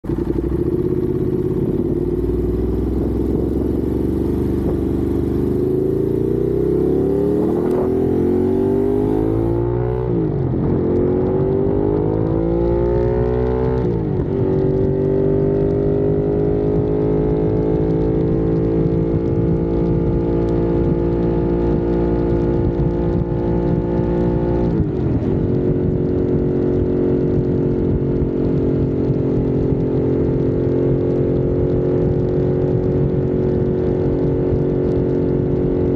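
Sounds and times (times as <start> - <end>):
motorcycle engine accelerating: 0.0 - 35.9.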